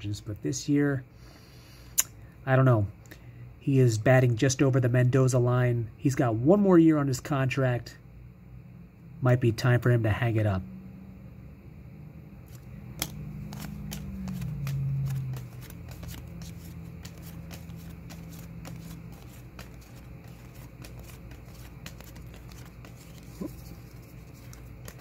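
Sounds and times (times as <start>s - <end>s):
cards flipping and clicking: 12.5s - 25.0s.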